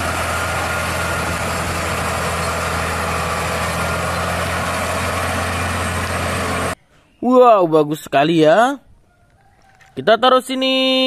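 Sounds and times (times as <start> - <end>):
road noise: 0.0 - 6.8
truck diesel engine droning: 0.0 - 6.8.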